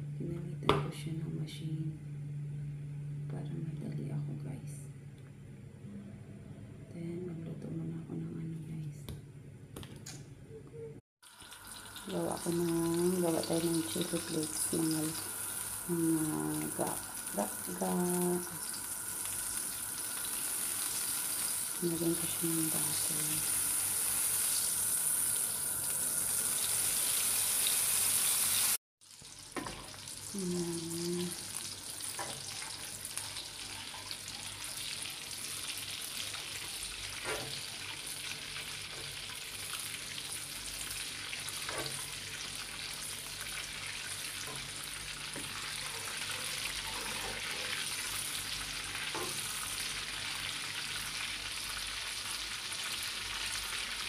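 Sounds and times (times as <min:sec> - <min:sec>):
butter sizzling in a wok: 0:11.2 - 0:54.0.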